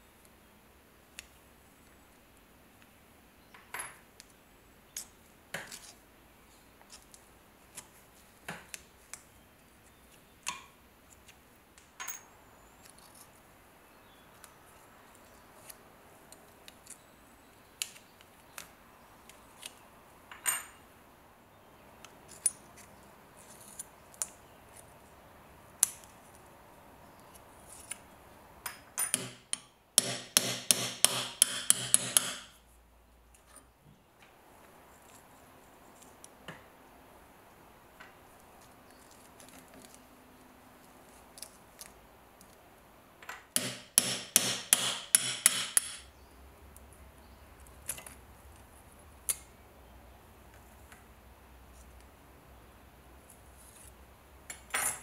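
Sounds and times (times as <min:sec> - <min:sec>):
hammer tapping on knife: 0:29.0 - 0:32.6, 0:43.6 - 0:46.1.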